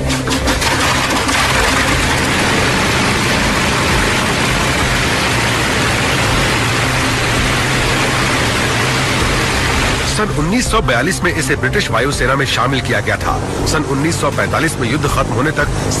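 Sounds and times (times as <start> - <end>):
aircraft engine drone: 0.0 - 16.0
propeller wash hiss: 0.6 - 10.6.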